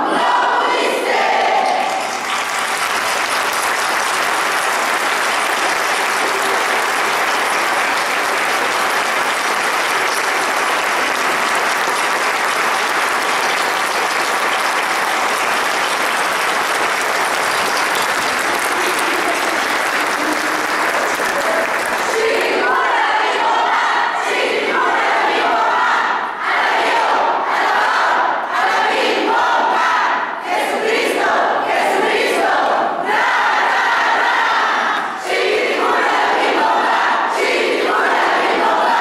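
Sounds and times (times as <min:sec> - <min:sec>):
congregation applauding: 0:01.3 - 0:23.2.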